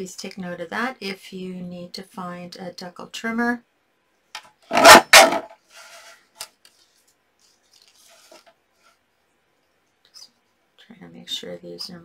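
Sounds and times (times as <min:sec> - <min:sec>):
light scraping: 0:04.7 - 0:06.9
paper rustling: 0:04.7 - 0:09.0.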